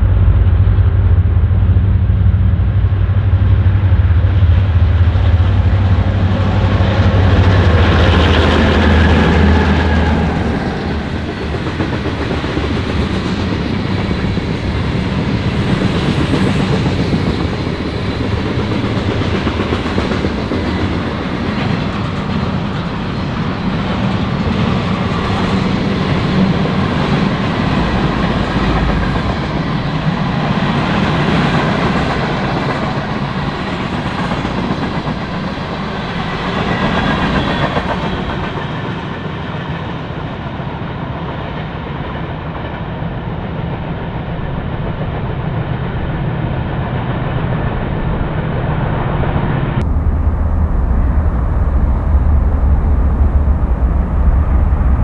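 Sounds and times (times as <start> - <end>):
train wheels rumbling on rails: 0.0 - 55.0
clickety-clack over rail joints: 5.6 - 45.8.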